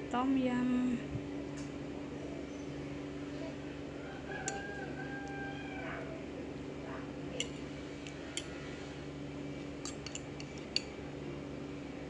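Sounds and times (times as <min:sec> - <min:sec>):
steady low hum: 0:00.0 - 0:12.0
fork clinking on bowl: 0:09.8 - 0:10.9.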